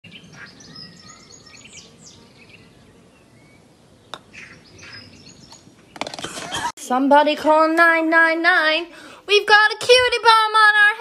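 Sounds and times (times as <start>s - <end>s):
birds chirping: 0.0s - 6.7s
putter striking golf ball: 4.1s - 4.4s.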